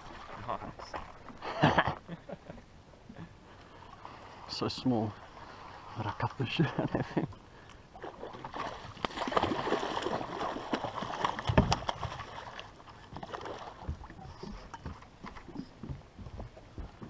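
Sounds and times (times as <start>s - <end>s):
fish splashing at water surface: 8.0s - 14.0s.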